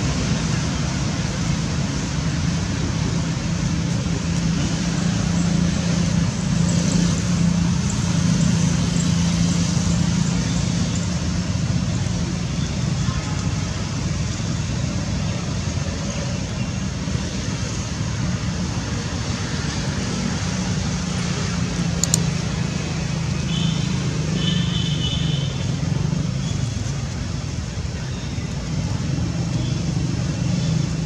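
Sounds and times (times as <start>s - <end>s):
brief click: 22.0s - 22.2s.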